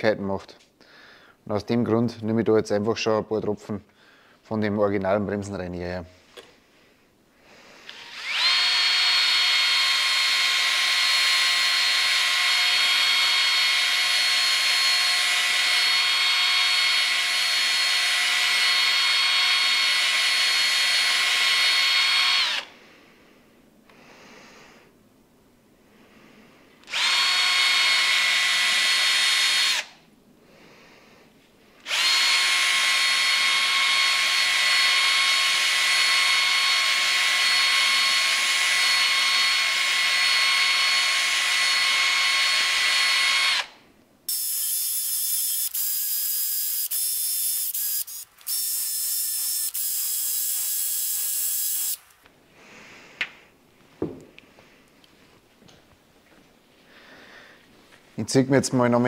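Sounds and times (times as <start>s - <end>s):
cordless drill spinning brush: 7.8s - 22.7s, 26.8s - 30.0s, 31.8s - 52.3s.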